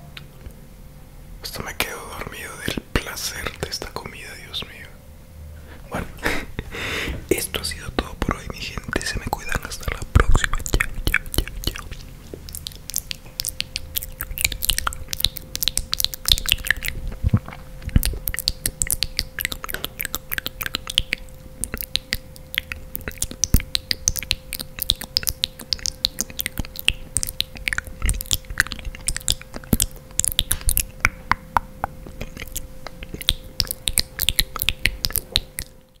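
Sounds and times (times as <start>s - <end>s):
faint steady hum: 0.0s - 36.0s
wet mouth clicks and smacks: 7.3s - 36.0s.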